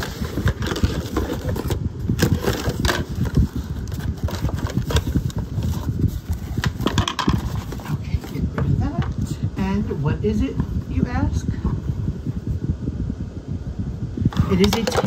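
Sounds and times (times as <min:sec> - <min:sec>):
cardboard and paper rustling: 0:00.0 - 0:09.2
low irregular rumble: 0:00.0 - 0:15.0.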